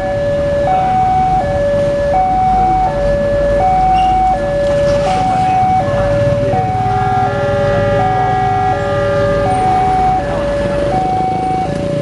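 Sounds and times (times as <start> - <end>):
level crossing alarm two tones: 0.0 - 7.4, 8.0 - 10.2
engine rumble: 0.0 - 12.0
train horn blast: 6.5 - 11.0.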